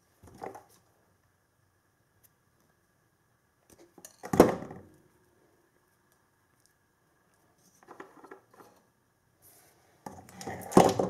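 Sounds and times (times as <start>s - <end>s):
soft rustle: 5.2s - 10.7s.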